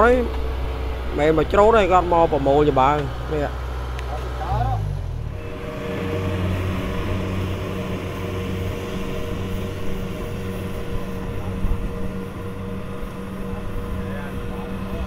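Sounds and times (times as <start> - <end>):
combine harvester engine drone: 0.0 - 15.0.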